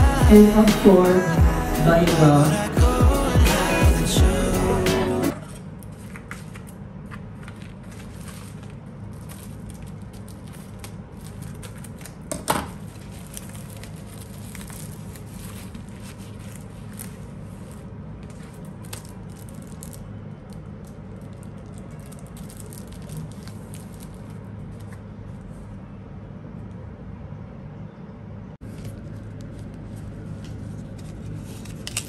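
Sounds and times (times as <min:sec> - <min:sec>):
plastic mailer crinkling: 0:05.3 - 0:25.5, 0:28.6 - 0:32.0
plastic ripping: 0:07.4 - 0:25.0, 0:30.6 - 0:32.0.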